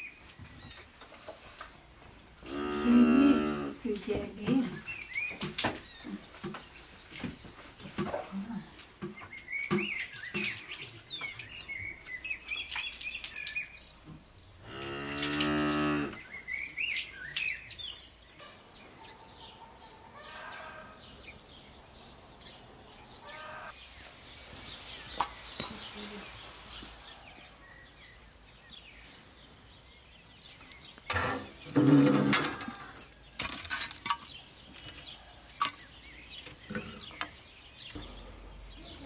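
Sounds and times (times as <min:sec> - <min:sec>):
birds chirping: 0:00.0 - 0:39.0
cow mooing: 0:02.5 - 0:03.8, 0:14.6 - 0:16.2.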